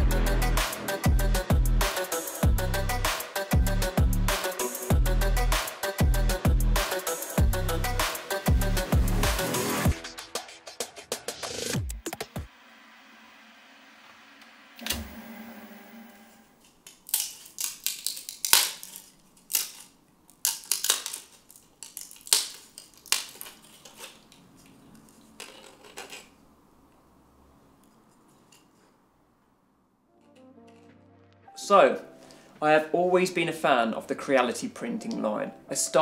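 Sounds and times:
hard objects clattering: 16.6s - 26.4s.

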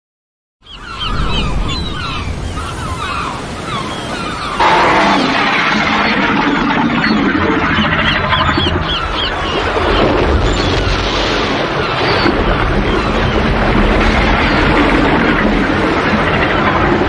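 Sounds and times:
high bird-like shrieks: 0.6s - 6.3s
deep rumble: 0.8s - 3.6s, 4.4s - 17.0s
dense rushing noise: 0.9s - 17.0s.

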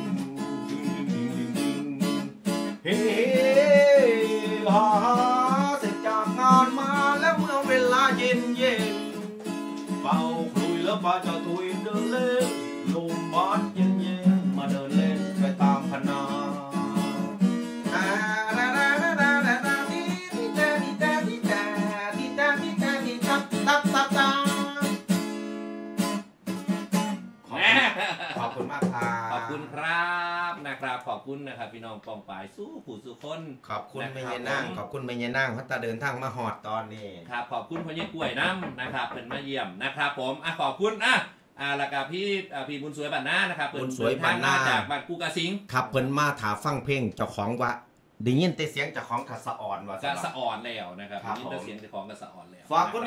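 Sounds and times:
man singing: 0.0s - 25.0s, 28.4s - 30.6s, 43.8s - 44.9s
acoustic guitar strumming: 0.0s - 30.4s.

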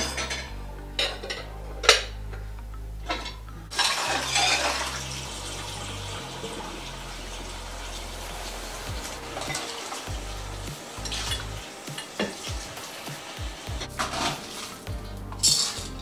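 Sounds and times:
dishes and cutlery clinking: 0.0s - 2.4s, 3.0s - 5.1s, 11.0s - 14.8s
running tap water: 3.1s - 16.0s.

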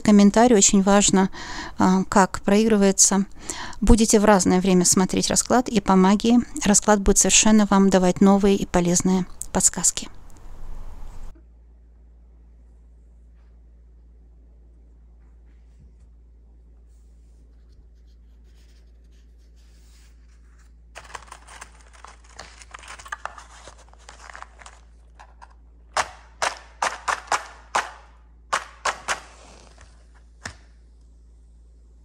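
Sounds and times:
matchbox rustling: 21.0s - 25.5s.

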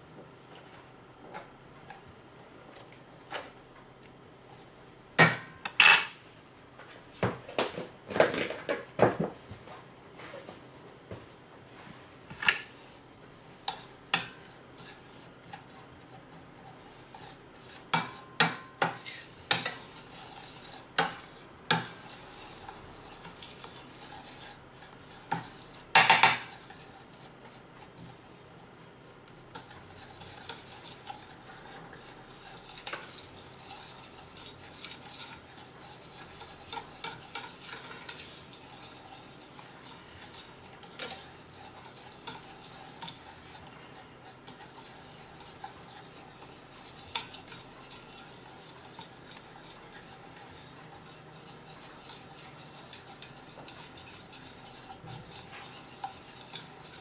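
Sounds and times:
utensil scraping and clinking on pan: 13.6s - 57.0s.

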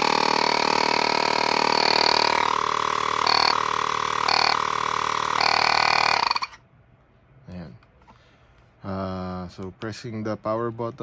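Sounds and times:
electric air pump buzzing: 0.0s - 6.6s.

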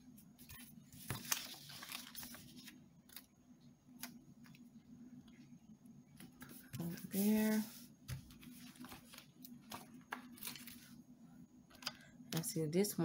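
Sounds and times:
paper rustling: 0.4s - 3.3s, 6.3s - 11.0s.

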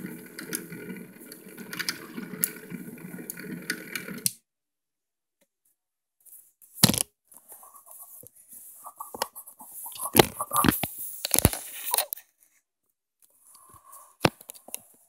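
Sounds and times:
plastic clicks and rattles: 0.0s - 4.3s
toy motor stopping: 0.0s - 4.3s.

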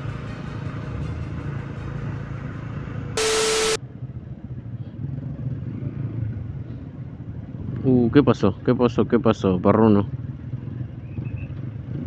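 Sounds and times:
static hiss with hum: 3.2s - 3.8s.

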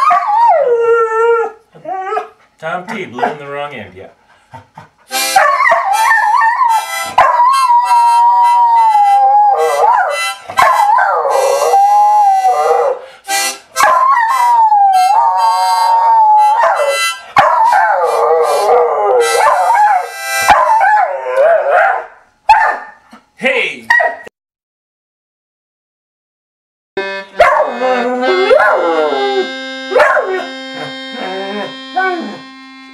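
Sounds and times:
dog howling: 0.0s - 2.4s, 5.4s - 13.0s, 13.8s - 22.8s, 27.4s - 32.5s
harmonica: 4.3s - 21.4s, 27.0s - 32.9s.

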